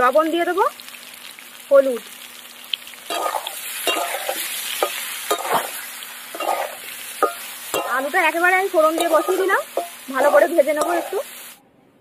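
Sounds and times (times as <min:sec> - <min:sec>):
potatoes sizzling in oil: 0:00.0 - 0:11.6
spatula scraping a metal pan: 0:03.1 - 0:11.3.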